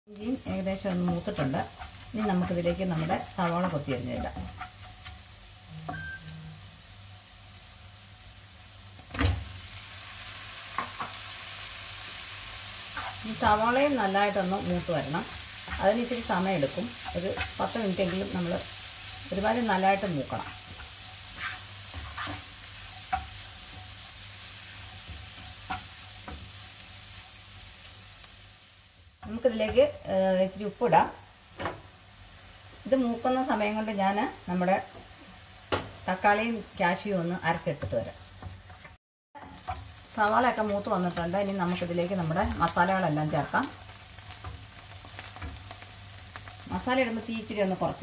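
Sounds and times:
ginger and garlic sizzling in butter: 0:00.1 - 0:48.0
spatula scraping a pan: 0:00.8 - 0:05.3, 0:12.6 - 0:13.6, 0:14.4 - 0:28.0.

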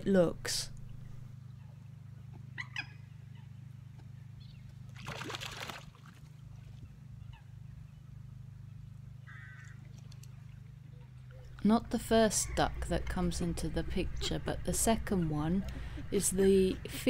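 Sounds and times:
steady low hum: 0:00.0 - 0:17.0
faint bird calls: 0:00.7 - 0:04.8, 0:06.6 - 0:11.6
water splash or rustle: 0:04.9 - 0:06.8.

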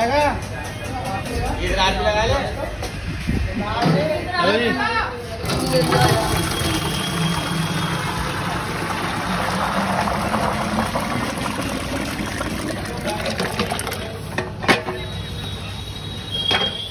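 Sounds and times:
thick curry pouring into drum: 0:05.4 - 0:14.5.

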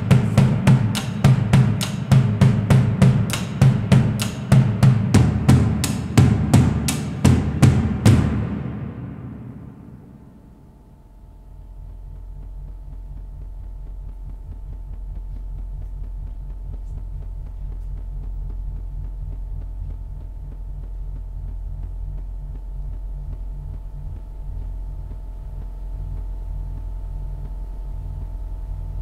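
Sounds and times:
drum stroke: 0:00.0 - 0:13.4
low throbbing hum: 0:00.0 - 0:29.0.

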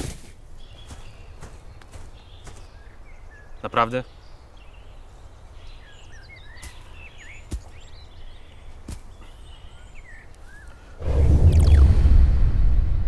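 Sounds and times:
small birds chirping: 0:00.0 - 0:12.0
low steady rumble: 0:11.0 - 0:13.0.

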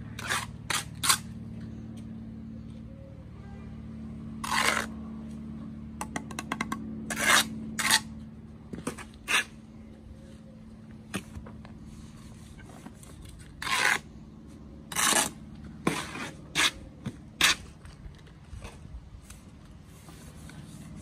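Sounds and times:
trowel scraping mortar: 0:00.1 - 0:01.4, 0:04.4 - 0:04.9, 0:07.1 - 0:08.2, 0:08.8 - 0:09.6, 0:13.2 - 0:14.1, 0:14.9 - 0:17.8.

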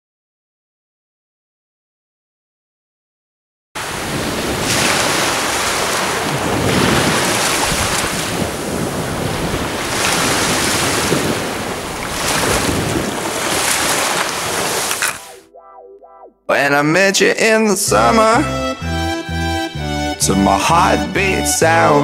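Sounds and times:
wind rumbling on microphone: 0:03.8 - 0:15.2
small waves breaking on beach: 0:03.8 - 0:15.3.

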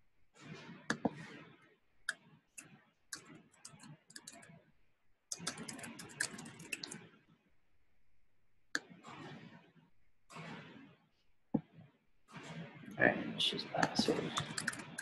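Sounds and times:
keyboard typing: 0:03.1 - 0:04.5, 0:05.3 - 0:07.0, 0:13.7 - 0:15.0.

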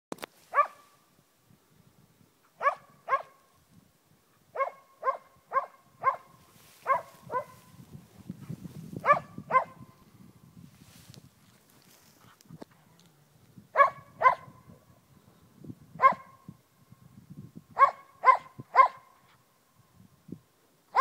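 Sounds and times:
dog barking: 0:00.5 - 0:00.9, 0:02.6 - 0:03.4, 0:04.6 - 0:07.7, 0:09.0 - 0:09.9, 0:13.8 - 0:14.7, 0:16.0 - 0:16.4, 0:17.8 - 0:19.2.

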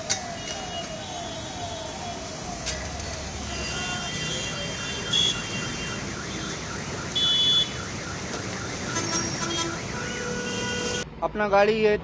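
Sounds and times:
traffic wading through flood water: 0:00.0 - 0:11.0
electronic alarm warbling: 0:00.3 - 0:11.0
vehicle horns: 0:03.3 - 0:08.0, 0:08.8 - 0:11.0.

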